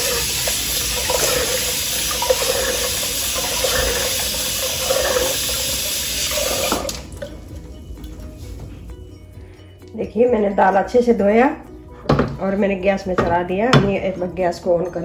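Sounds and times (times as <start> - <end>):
water running into steel sink: 0.0 - 7.3.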